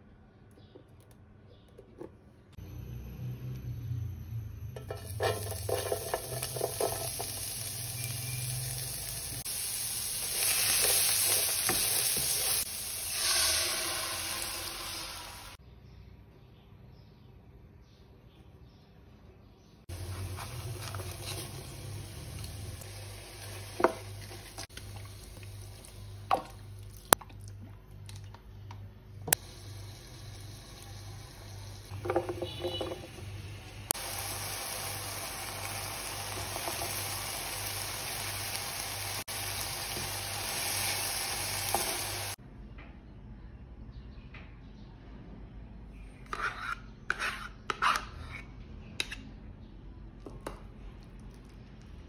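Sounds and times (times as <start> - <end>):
vegetables clattering into pan: 4.8 - 9.4, 31.9 - 33.4
food sizzling in frying pan: 4.8 - 15.6, 19.9 - 26.9, 29.4 - 42.4.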